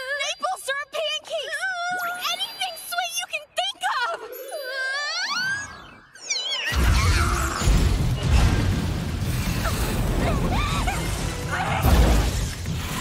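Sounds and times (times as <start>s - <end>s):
loud crashing impacts and blasts: 6.8s - 13.0s.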